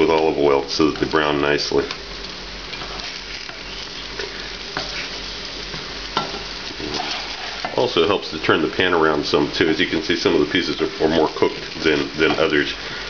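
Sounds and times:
eggplant sizzling in oil: 0.0s - 13.0s
spatula scraping and tapping: 4.2s - 7.8s.

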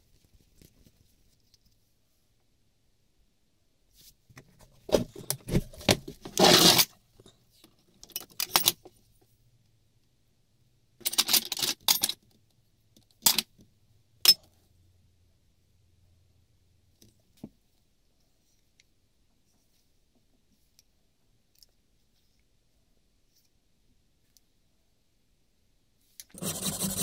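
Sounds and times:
metal pieces scraping and clinking: 6.4s - 6.9s.

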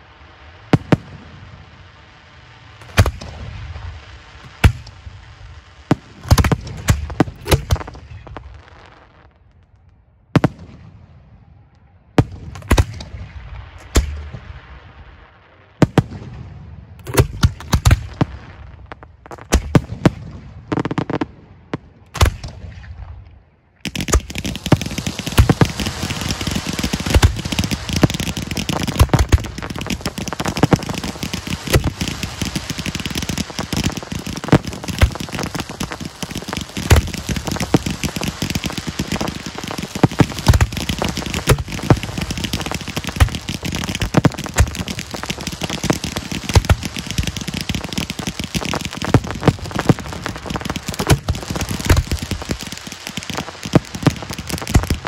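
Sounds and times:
firework mortar thumps: 2.8s - 3.6s, 4.3s - 5.1s, 5.9s - 8.5s, 17.0s - 22.8s, 23.8s - 55.0s
firework hiss: 24.0s - 55.0s.

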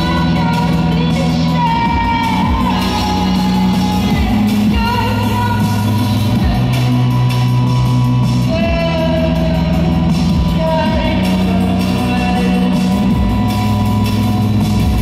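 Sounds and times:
woman singing: 0.0s - 14.3s
bass notes: 0.0s - 15.0s.

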